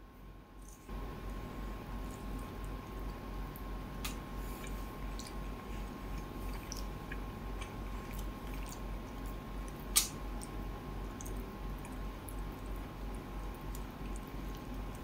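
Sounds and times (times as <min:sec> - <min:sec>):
chewing food: 0:02.0 - 0:15.0
wet mouth clicks: 0:09.9 - 0:10.5.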